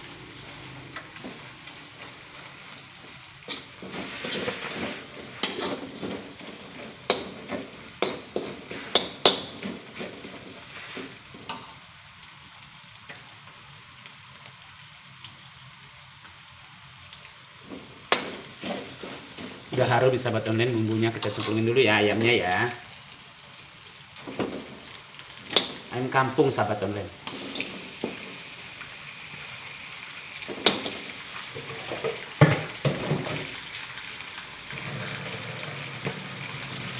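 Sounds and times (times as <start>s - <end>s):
paste sizzling in hot oil: 0.0s - 36.9s
metal spatula scraping wok: 3.4s - 11.6s, 18.1s - 19.8s, 21.0s - 21.8s.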